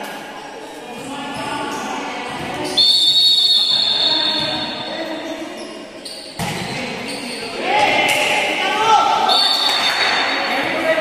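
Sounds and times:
players' voices echoing: 0.0s - 11.0s
whistle blast: 2.7s - 4.6s, 9.3s - 9.9s.

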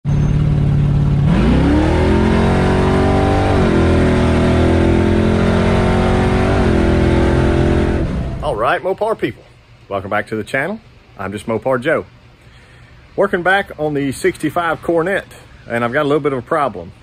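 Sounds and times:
car engine accelerating and upshifting: 1.2s - 8.4s.

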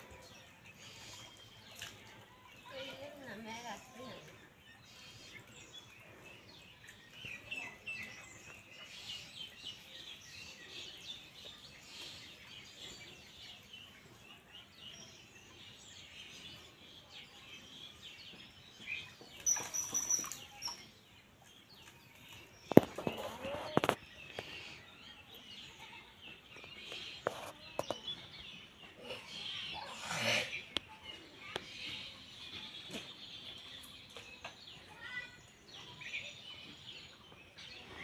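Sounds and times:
small birds chirping: 0.0s - 38.0s.

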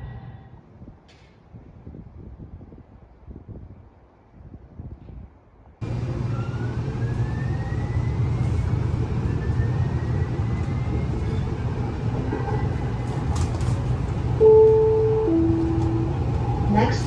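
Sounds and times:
wheels rumbling on rails: 5.8s - 17.0s
announcement chime: 14.4s - 16.2s.

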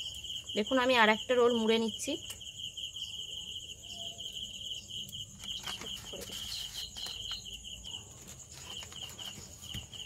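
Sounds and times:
cricket chirping: 0.0s - 10.0s
paper rustling and crinkling: 5.4s - 10.0s.

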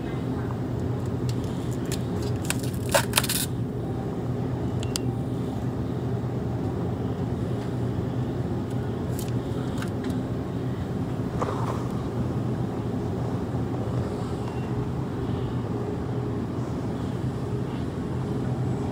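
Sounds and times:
display case hum: 0.0s - 18.9s
sharp clicks and crinkles: 1.0s - 3.6s.

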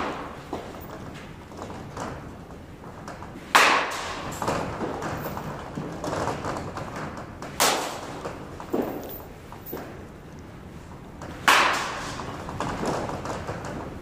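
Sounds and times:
bat striking ball: 0.0s - 0.8s, 3.5s - 4.4s, 7.5s - 8.2s, 11.3s - 12.3s
balls landing in netting: 0.0s - 1.4s, 3.4s - 6.7s, 7.4s - 10.0s, 11.3s - 13.6s.

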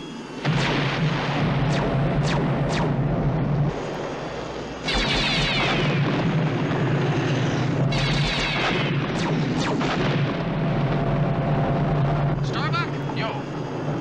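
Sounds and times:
rapid laser fire: 0.4s - 3.8s, 4.8s - 6.7s, 7.9s - 10.6s
sharp cracks: 0.4s - 3.9s, 4.8s - 11.1s
low spacecraft engine rumble: 1.0s - 14.0s.

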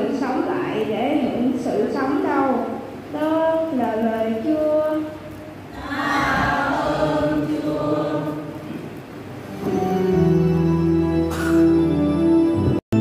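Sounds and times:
voices chanting: 5.7s - 8.6s
organ chord: 9.4s - 13.0s.

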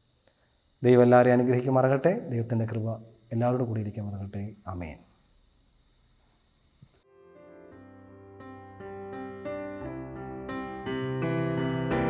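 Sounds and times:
slow piano music: 7.0s - 12.0s.

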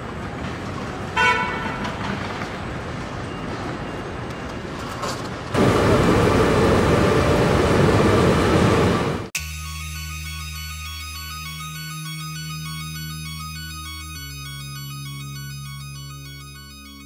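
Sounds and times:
assembly line machinery noise: 5.6s - 9.7s.

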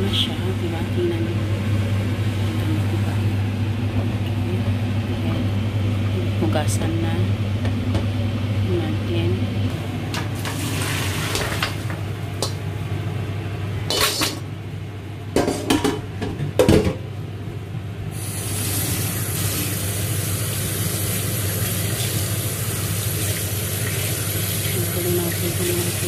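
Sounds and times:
kitchen tap running: 10.1s - 12.6s, 18.2s - 26.0s
water poured into metal strainer: 10.4s - 11.7s.

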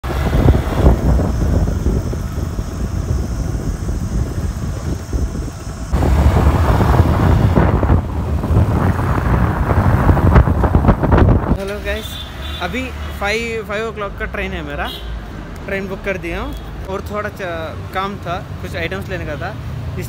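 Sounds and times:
wind buffeting microphone: 0.0s - 11.7s
road noise: 0.0s - 20.0s.

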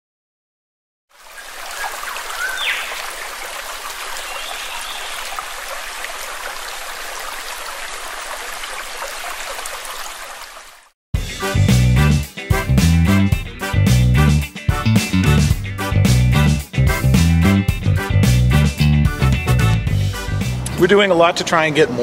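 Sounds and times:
running water: 1.1s - 10.9s.

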